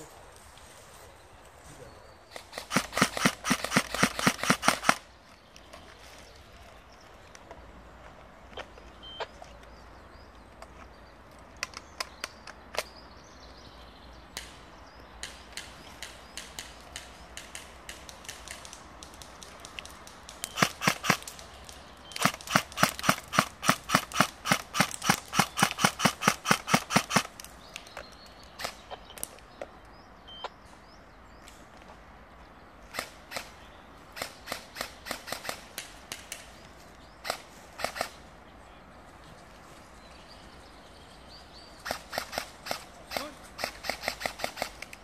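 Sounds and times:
airsoft guns firing: 0:02.3 - 0:05.1, 0:15.2 - 0:21.5, 0:22.1 - 0:27.5, 0:32.9 - 0:36.6, 0:37.2 - 0:38.2, 0:41.8 - 0:45.0.

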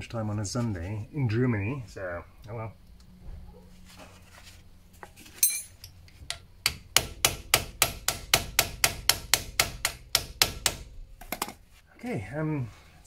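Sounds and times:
rapid metal-on-metal strikes: 0:06.6 - 0:11.0.

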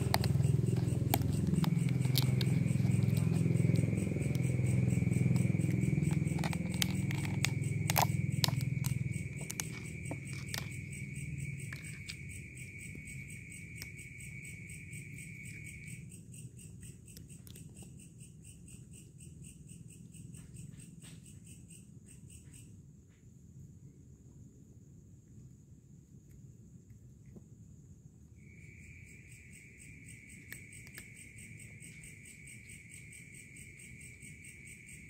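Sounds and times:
cat crunching dry kibble: 0:00.0 - 0:14.1
night insects trilling: 0:00.0 - 0:23.8, 0:27.7 - 0:35.0.

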